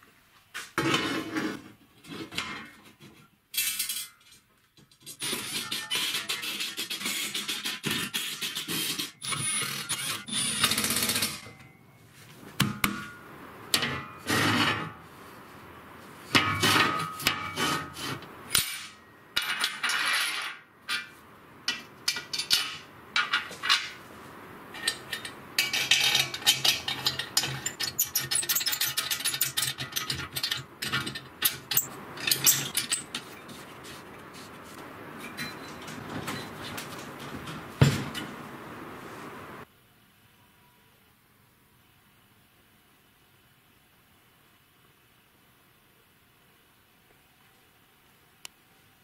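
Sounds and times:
steel parts clinking on table: 3.5 - 5.8, 18.5 - 21.1, 24.8 - 33.5.

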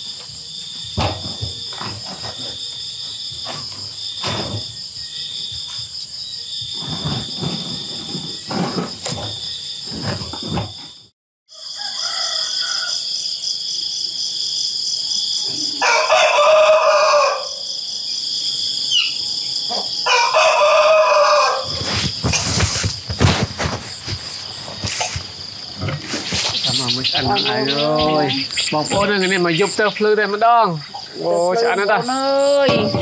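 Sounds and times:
insects chirring: 0.0 - 33.0
knocks and clatter: 0.8 - 2.7, 21.8 - 27.3
rooster crowing: 11.5 - 13.5, 15.5 - 17.8, 18.9 - 21.9.

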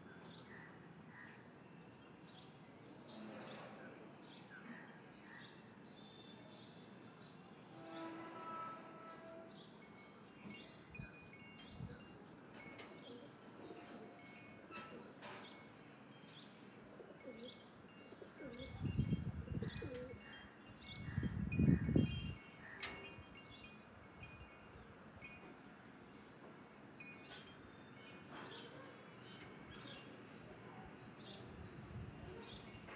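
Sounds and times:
metallic chimes tinkling: 9.8 - 28.9.

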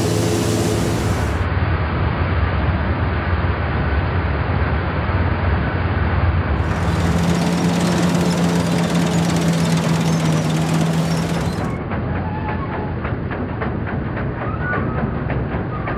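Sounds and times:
steady engine hum: 0.0 - 1.5, 6.6 - 11.8
threshing machinery rattling: 6.6 - 11.8.

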